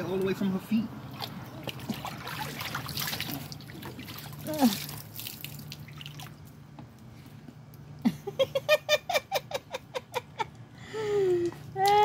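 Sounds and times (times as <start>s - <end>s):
person laughing: 8.0s - 10.5s.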